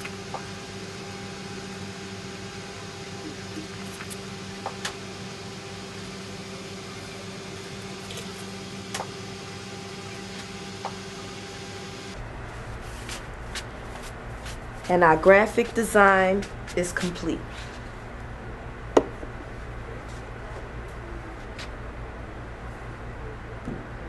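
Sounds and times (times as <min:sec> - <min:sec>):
electrical hum with tones: 0:00.0 - 0:24.0.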